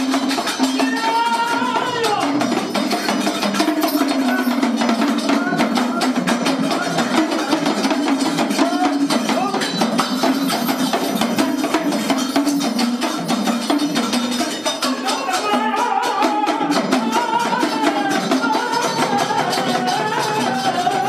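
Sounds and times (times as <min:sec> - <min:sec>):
metal cymbals percussion: 0:00.0 - 0:21.0.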